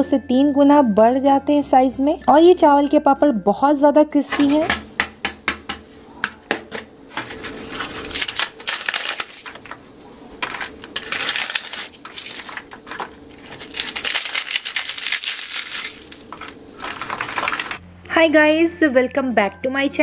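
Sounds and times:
crisp papads crackling and crunching: 7.1s - 17.8s.

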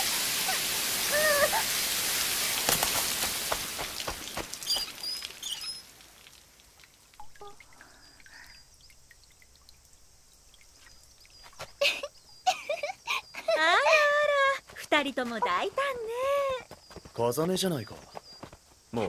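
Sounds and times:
spraying water: 0.0s - 8.6s
water drips: 0.0s - 16.6s
bird chirps: 4.2s - 5.9s.

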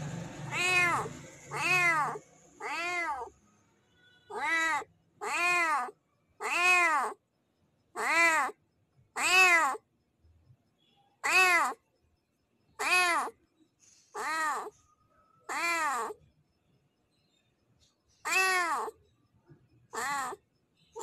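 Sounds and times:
male cat meowing: 0.5s - 3.3s, 4.3s - 7.2s, 8.0s - 8.5s, 9.2s - 9.8s, 11.2s - 11.8s, 12.8s - 13.3s, 14.2s - 14.7s, 15.5s - 16.1s, 18.3s - 18.9s, 20.0s - 20.4s.

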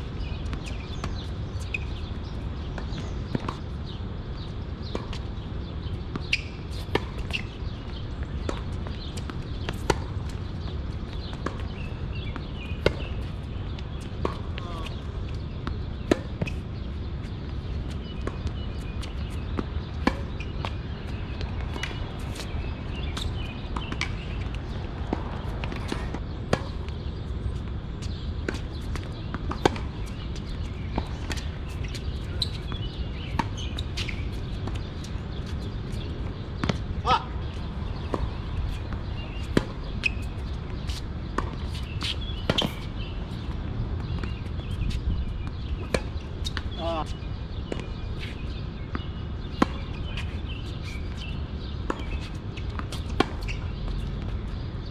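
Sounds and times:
tennis balls bouncing on court: 0.1s - 54.9s
tennis balls struck by rackets: 17.8s - 27.0s, 28.4s - 50.4s, 51.1s - 54.6s.

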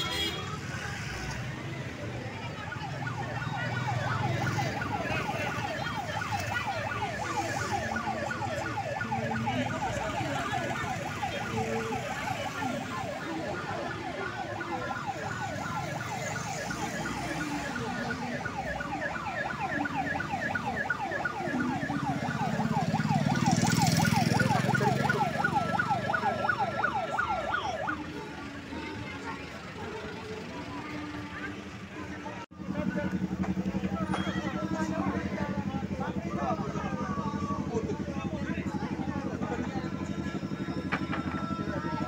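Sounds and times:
vehicle engine noise: 0.2s - 42.0s
siren yelping: 2.6s - 28.6s.

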